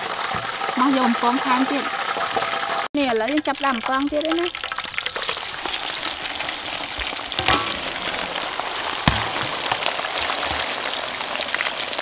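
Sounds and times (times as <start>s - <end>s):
oil crackling sizzle: 0.0s - 12.0s
sharp knock: 7.4s - 8.4s, 9.1s - 9.7s.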